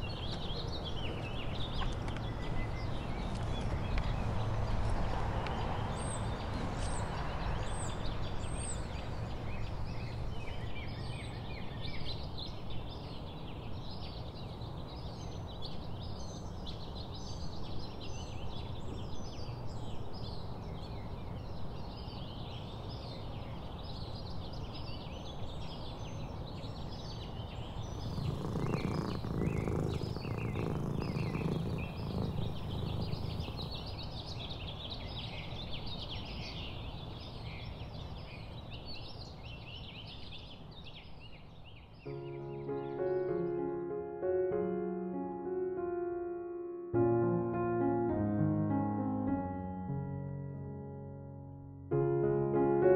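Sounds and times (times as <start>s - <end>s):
small birds chirping: 0.0s - 43.8s
low background rumble: 27.8s - 34.1s.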